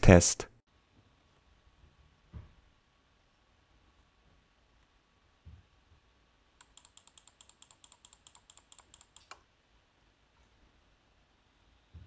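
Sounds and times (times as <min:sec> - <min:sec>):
laptop cooling fan hiss: 0:06.5 - 0:09.5.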